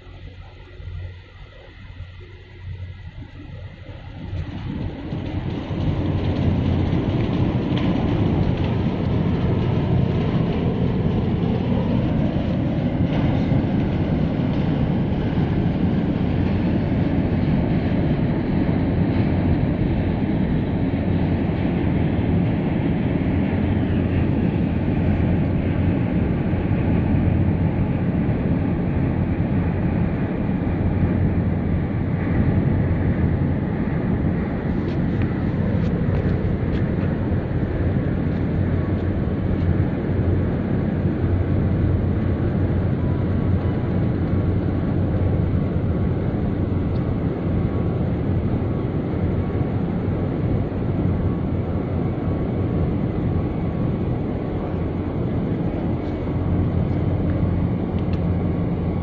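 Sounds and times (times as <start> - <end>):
low hum: 0.0 - 59.0
ship engines rumbling: 2.0 - 59.0.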